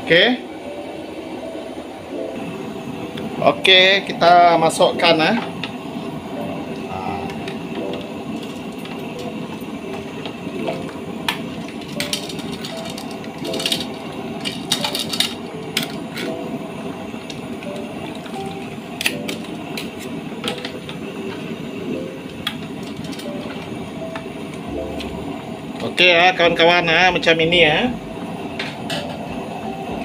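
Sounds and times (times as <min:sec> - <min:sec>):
metal utensils clinking on pot: 0:11.3 - 0:16.3.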